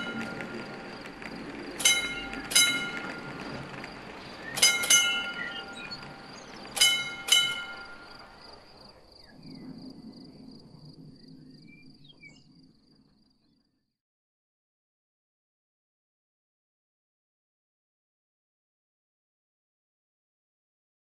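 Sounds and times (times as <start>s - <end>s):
level-crossing bell striking: 0.0s - 0.7s, 1.8s - 3.5s, 4.4s - 8.4s
low hum: 0.0s - 13.8s.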